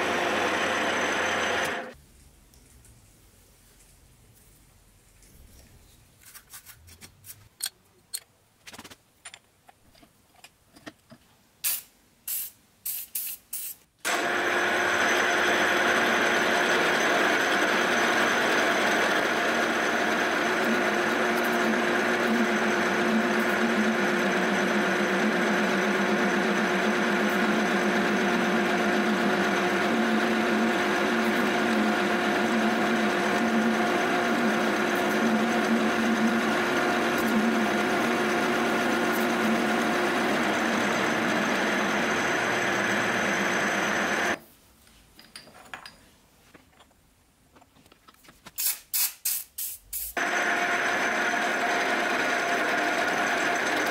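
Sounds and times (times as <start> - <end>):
milling machine cutting metal: 0.0 - 1.9, 14.1 - 44.4, 50.2 - 53.9
spindle whine: 0.0 - 2.0, 18.8 - 44.4.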